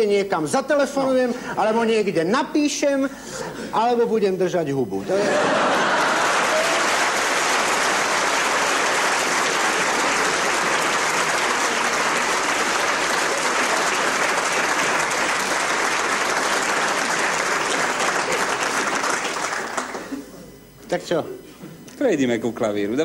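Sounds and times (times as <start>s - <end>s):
audience applauding: 5.3s - 20.3s.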